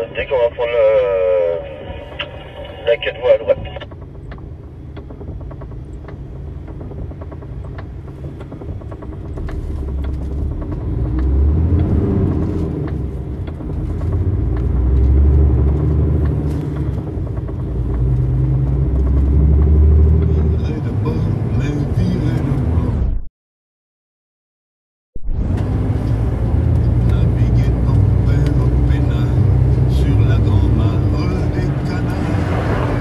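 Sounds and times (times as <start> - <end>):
truck diesel engine accelerating: 0.0 - 23.1, 25.3 - 33.0.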